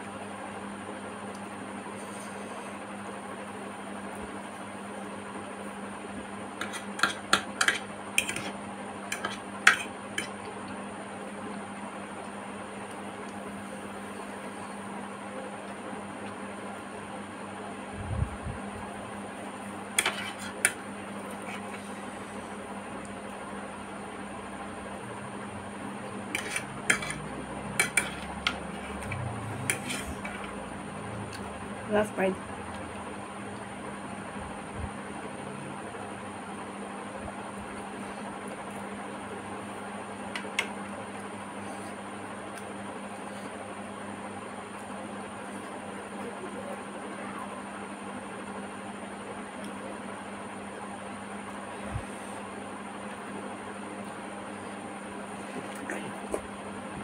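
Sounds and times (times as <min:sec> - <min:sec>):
low hum and hiss: 0:00.0 - 0:57.0.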